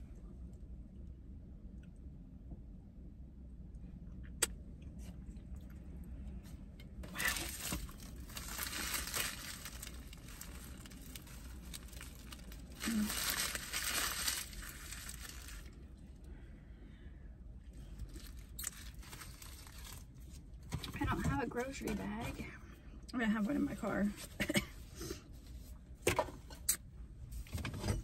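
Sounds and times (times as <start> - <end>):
paper wrapper crinkling: 7.1 - 15.8, 18.1 - 20.3.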